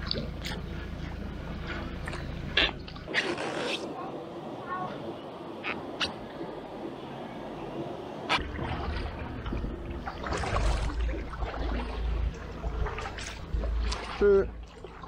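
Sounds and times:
paddle strokes splashing water: 8.3s - 15.0s.

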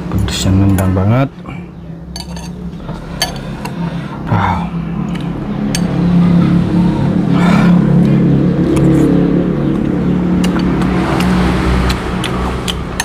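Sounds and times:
people talking: 0.0s - 2.0s, 4.2s - 5.4s
vehicle engine humming: 0.0s - 13.0s
spoon and fork clinking on bowl: 2.2s - 2.6s.

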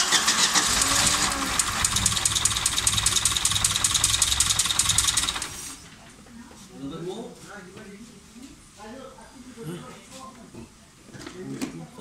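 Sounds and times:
car engine starting and running: 0.0s - 5.8s.

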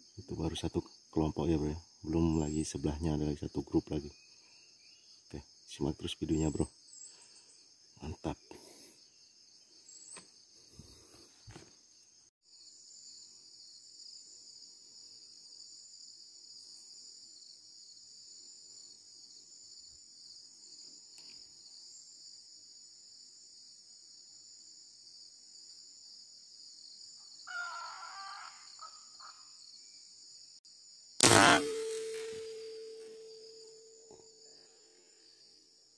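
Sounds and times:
forest insects chorus: 0.0s - 35.9s
brief mid-pitched sound: 31.2s - 34.2s.

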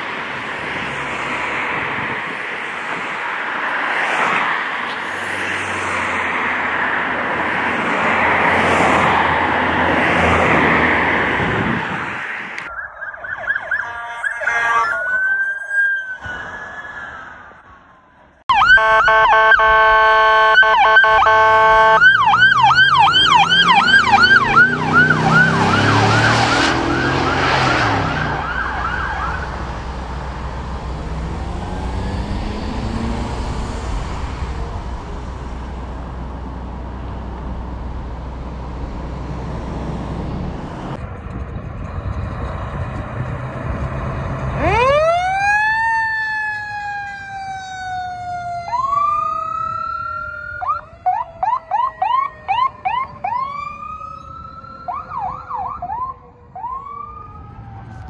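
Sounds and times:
engine and traffic rumble: 0.0s - 15.0s, 17.3s - 58.0s
siren yelping: 12.6s - 17.6s, 18.5s - 41.0s, 44.6s - 58.0s
siren wailing: 12.6s - 17.8s, 18.5s - 41.0s, 44.6s - 58.0s
vehicle horn blast: 13.8s - 15.0s, 18.6s - 22.2s.

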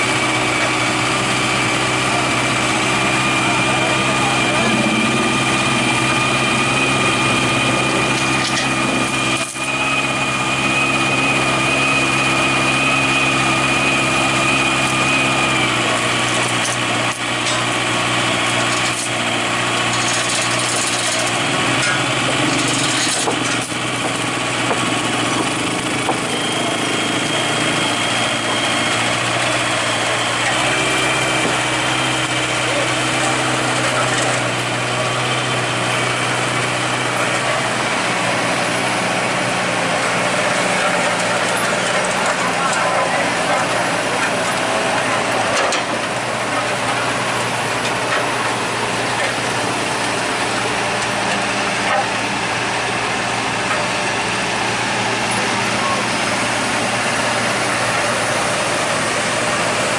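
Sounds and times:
high whine: 0.0s - 18.8s
heavy equipment diesel engines running: 0.0s - 59.9s.

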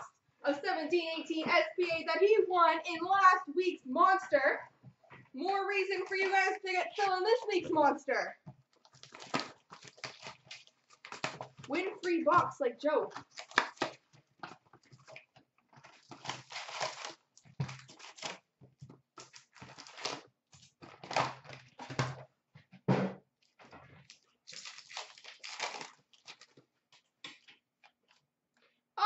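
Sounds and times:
foil packs crinkling: 8.7s - 11.7s, 13.2s - 18.5s, 19.2s - 22.0s, 24.0s - 26.7s.

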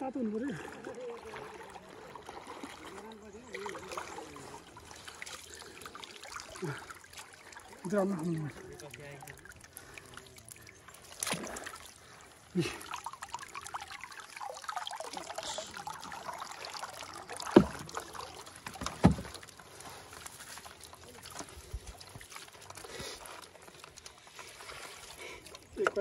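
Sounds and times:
water dripping and trickling: 0.0s - 26.0s
sharp thumps in boat: 17.5s - 17.9s, 18.7s - 19.4s.

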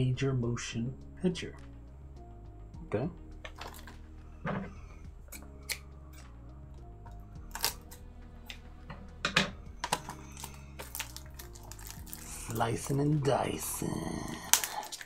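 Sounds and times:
quiet background music: 0.0s - 15.0s
packaging clicks and taps: 9.4s - 12.2s.

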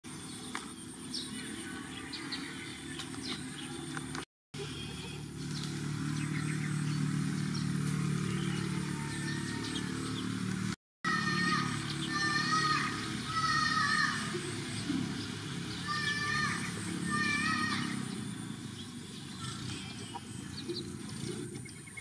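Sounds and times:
motor engine humming: 0.1s - 21.9s.

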